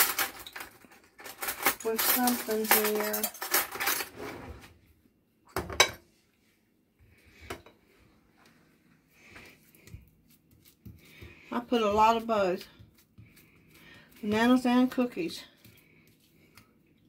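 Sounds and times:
sharp kitchen clatter: 0:00.0 - 0:04.1.

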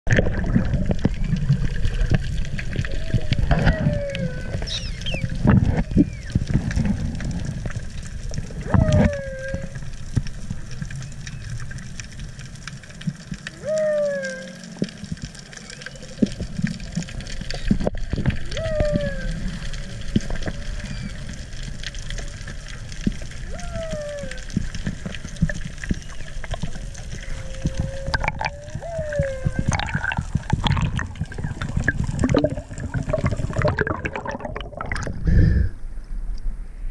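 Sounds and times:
splashing and bubbling: 0:00.0 - 0:35.8
whale moans: 0:02.8 - 0:07.3, 0:08.5 - 0:10.0, 0:13.5 - 0:16.9, 0:18.4 - 0:21.4, 0:23.4 - 0:25.1, 0:27.0 - 0:34.7
faint higher whale calls: 0:02.9 - 0:06.4, 0:08.6 - 0:10.0, 0:13.5 - 0:16.6, 0:18.4 - 0:22.5, 0:23.4 - 0:25.0, 0:25.8 - 0:30.5.

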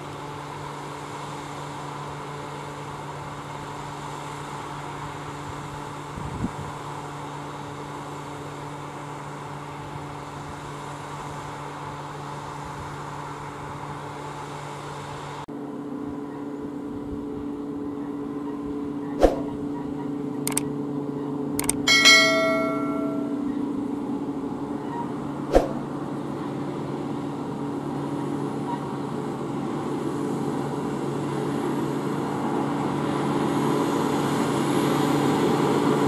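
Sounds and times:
sharp clicks: 0:20.5 - 0:20.7, 0:21.6 - 0:21.9
short chime: 0:21.6 - 0:23.7.

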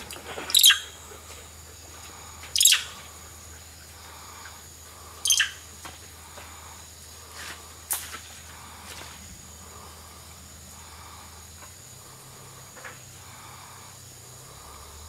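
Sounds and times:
high-pitched insect drone: 0:00.5 - 0:07.9
sharp high-pitched chirps: 0:02.6 - 0:03.0, 0:05.2 - 0:05.6.

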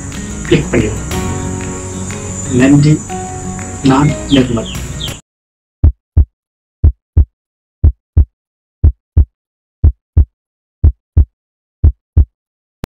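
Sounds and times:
heartbeat thumps: 0:05.8 - 0:12.3.

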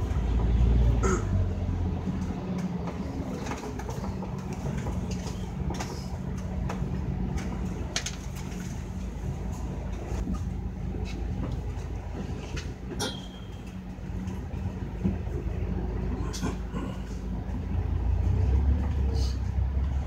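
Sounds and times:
bus diesel engine droning: 0:00.0 - 0:20.0
bodywork clicks and rattles: 0:02.1 - 0:09.1.

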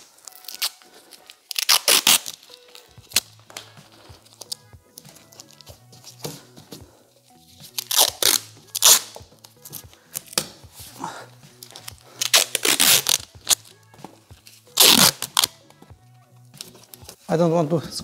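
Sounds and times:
masking tape ripping: 0:00.0 - 0:06.2, 0:07.6 - 0:10.7, 0:11.5 - 0:13.8, 0:14.6 - 0:15.6
quiet background music: 0:00.0 - 0:18.0.

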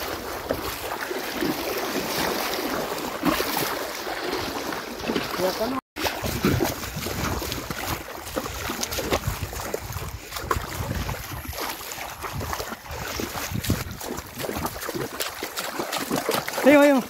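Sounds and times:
water splashing from wading: 0:00.0 - 0:17.0
wind rumble on microphone: 0:06.3 - 0:15.1.

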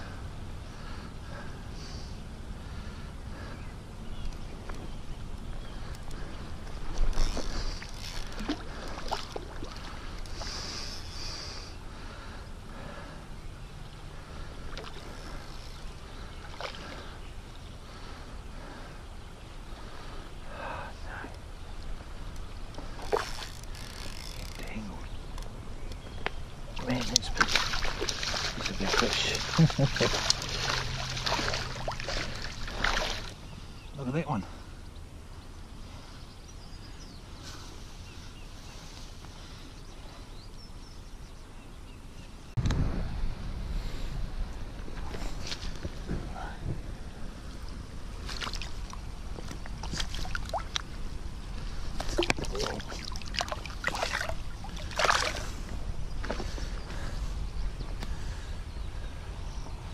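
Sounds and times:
outdoor background noise: 0:00.0 - 0:59.9
fish splashing at water surface: 0:26.8 - 0:33.3, 0:52.0 - 0:55.6
steady low rumble: 0:42.4 - 0:59.9.

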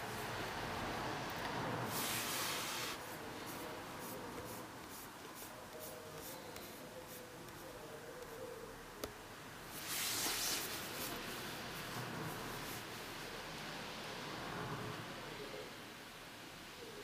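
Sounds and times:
faint rubbing and scratching: 0:01.8 - 0:08.4, 0:09.7 - 0:13.4.

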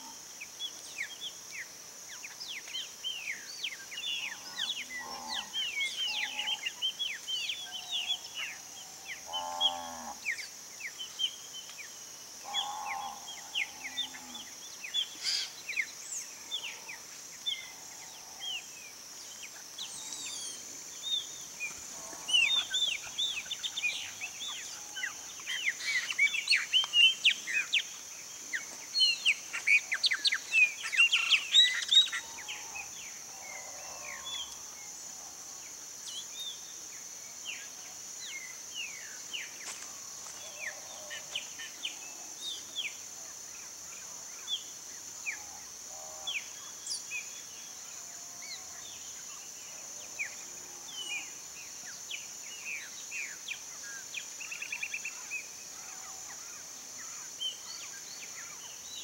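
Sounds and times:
high insect drone: 0:00.0 - 0:59.0
songbirds chirping and whistling: 0:19.4 - 0:34.6.

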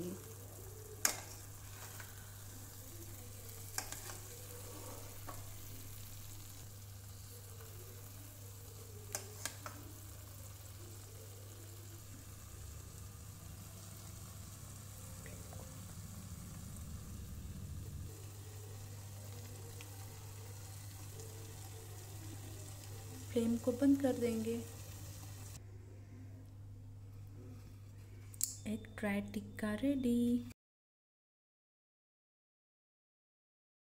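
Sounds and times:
food sizzling in a pan: 0:00.0 - 0:25.6
spatula stirring and scraping: 0:00.7 - 0:06.0, 0:08.8 - 0:10.0.

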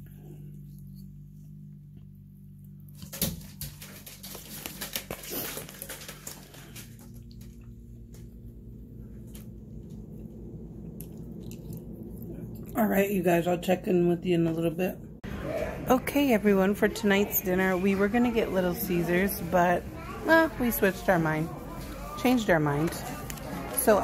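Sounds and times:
steady low hum: 0:00.0 - 0:24.0
chewing: 0:09.2 - 0:12.8.

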